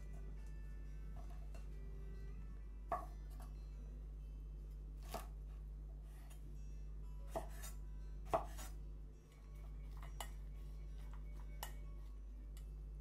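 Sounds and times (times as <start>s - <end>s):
steady low hum: 0.0s - 13.0s
knife chopping on cutting board: 5.0s - 5.3s, 7.3s - 7.7s, 8.3s - 8.7s.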